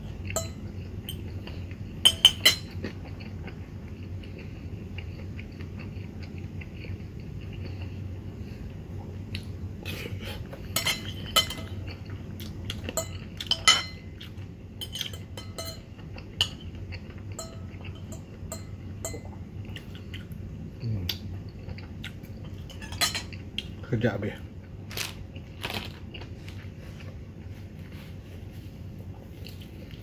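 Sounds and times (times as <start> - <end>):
cutlery scraping ceramic plate: 10.8 - 11.8.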